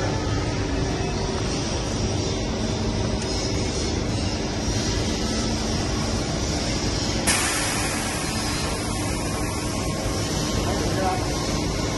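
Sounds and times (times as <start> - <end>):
workshop machinery humming: 0.0 - 11.9
compressed air hissing: 7.2 - 10.5.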